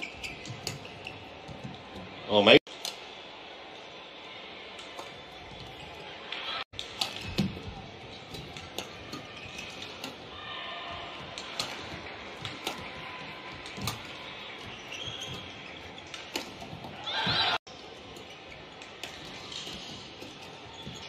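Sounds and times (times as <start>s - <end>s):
shoes squeaking on court floor: 0.0s - 2.6s, 5.0s - 21.0s.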